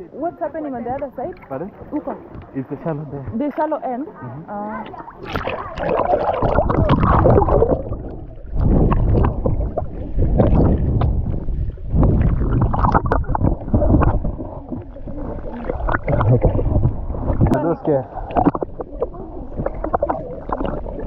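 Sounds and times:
muffled underwater gurgling: 0:04.7 - 0:21.0
water splashing: 0:04.7 - 0:21.0.

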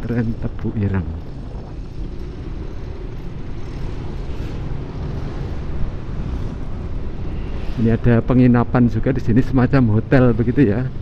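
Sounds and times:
road noise: 0:00.0 - 0:11.0
vehicle engine rumble: 0:00.0 - 0:11.0.

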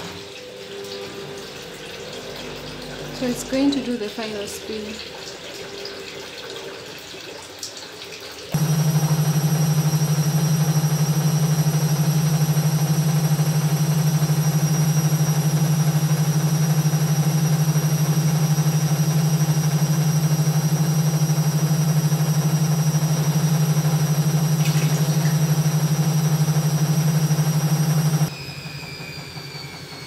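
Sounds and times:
washing machine spinning hum: 0:00.0 - 0:30.0
high whine: 0:08.6 - 0:28.3.

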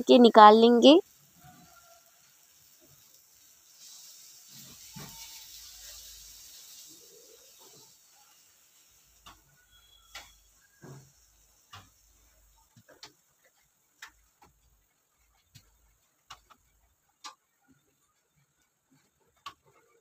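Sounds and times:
tongs and knife tapping wok: 0:08.7 - 0:14.7.

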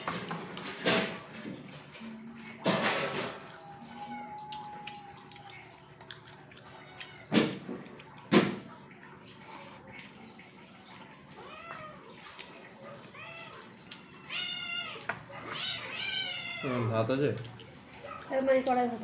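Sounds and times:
cat meowing: 0:03.6 - 0:05.5, 0:06.6 - 0:07.3, 0:11.3 - 0:12.2, 0:13.1 - 0:16.9.

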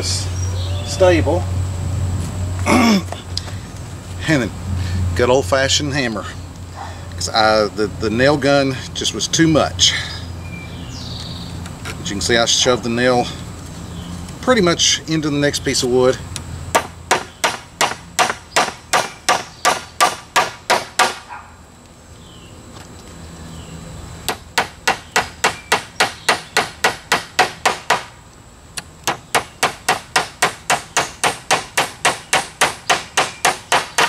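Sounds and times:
hammer driving nails into wood: 0:16.7 - 0:21.2, 0:24.3 - 0:28.1, 0:29.0 - 0:34.0.

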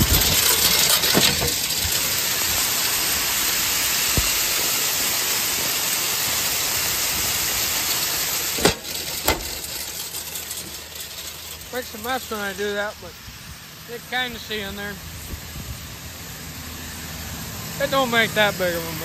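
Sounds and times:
grain rushing through metal equipment: 0:00.0 - 0:19.0
metal door banging shut: 0:00.4 - 0:01.7, 0:08.6 - 0:09.8.

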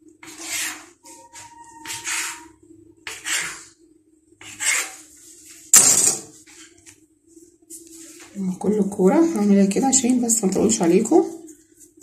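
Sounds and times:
dough scraping on marble: 0:00.2 - 0:03.8, 0:04.4 - 0:05.7.

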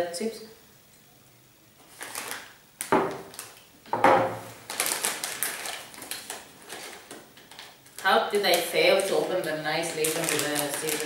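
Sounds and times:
plastic snack bag crinkling: 0:01.9 - 0:03.7, 0:04.5 - 0:11.0
glass tumblers knocked on table: 0:03.9 - 0:04.4.

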